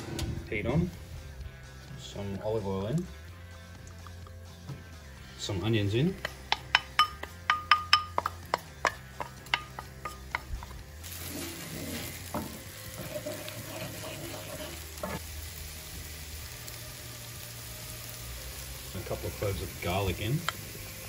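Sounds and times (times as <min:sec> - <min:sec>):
onion sizzling in a pan: 0:05.6 - 0:21.0
wooden spoon tapping a pan: 0:06.2 - 0:10.8.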